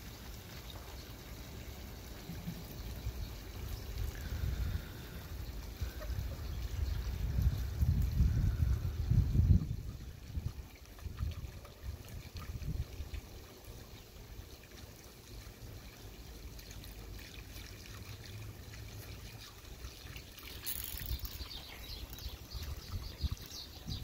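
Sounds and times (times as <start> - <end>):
water trickling into puddle: 0.0 - 24.0.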